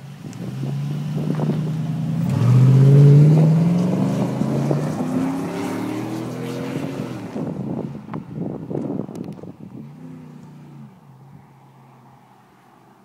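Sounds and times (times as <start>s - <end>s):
truck engine accelerating: 0.0s - 7.8s.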